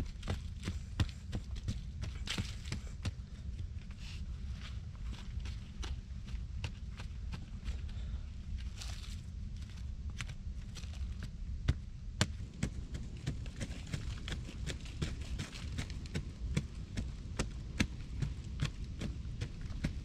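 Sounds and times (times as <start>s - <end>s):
hand tool digging into soil: 0.0s - 3.2s, 12.2s - 20.0s
steady low rumble: 0.0s - 20.0s.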